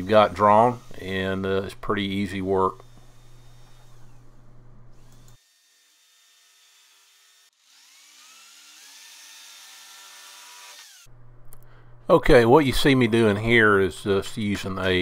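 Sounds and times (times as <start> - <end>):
jigsaw cutting wood: 5.0 - 11.1.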